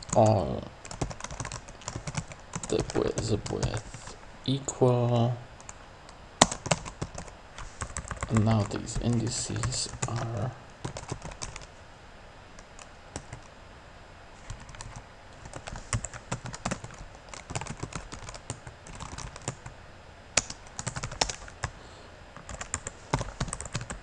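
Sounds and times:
typing on computer keyboard: 0.0 - 3.9, 6.4 - 11.7, 14.5 - 19.7, 20.4 - 21.7, 22.4 - 24.0.

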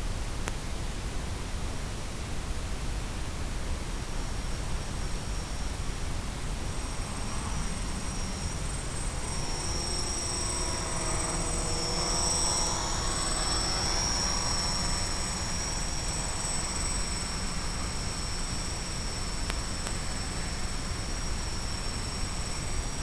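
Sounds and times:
high steady whines: 0.0 - 23.0
wavering motor whine: 4.0 - 23.0
drone propellers whirring: 4.7 - 23.0.

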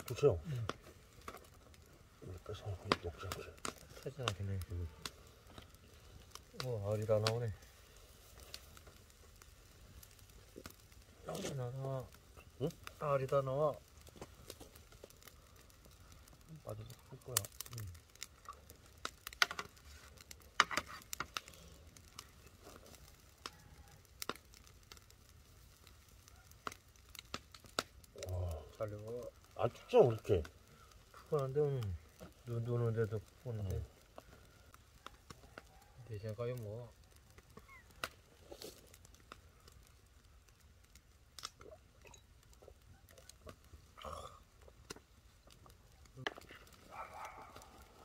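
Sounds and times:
fish crackling over fire: 0.0 - 48.0
faint chewing: 17.4 - 25.1, 33.8 - 36.0, 41.4 - 48.0.

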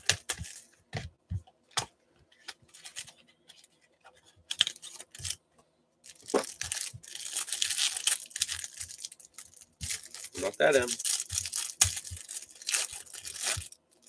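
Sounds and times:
plastic wrapper tearing and crinkling: 4.5 - 5.4, 6.0 - 14.0.

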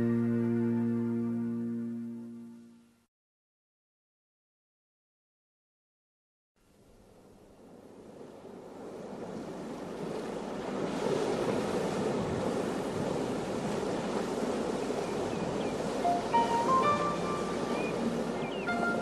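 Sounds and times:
ocean waves rushing: 8.0 - 19.0
rising musical notes: 16.0 - 19.0.

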